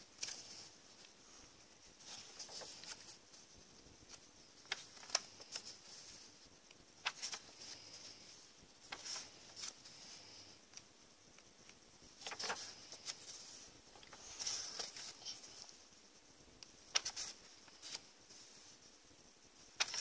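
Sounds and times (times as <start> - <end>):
paper pages rustling and flicking: 0.2 - 1.1, 2.0 - 3.2, 4.1 - 6.3, 7.0 - 10.4, 12.2 - 15.7, 16.9 - 18.4, 19.8 - 20.0.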